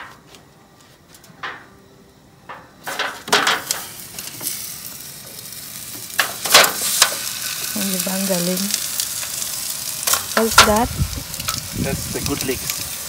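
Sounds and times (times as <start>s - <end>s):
meat sizzling in foil tray: 2.8s - 13.0s.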